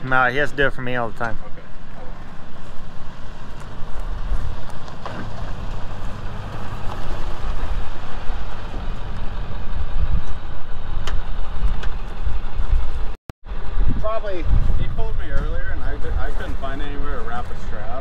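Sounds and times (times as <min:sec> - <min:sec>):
tyres on gravel: 0:00.0 - 0:13.2, 0:15.4 - 0:18.0
diesel truck engine running: 0:00.0 - 0:17.7.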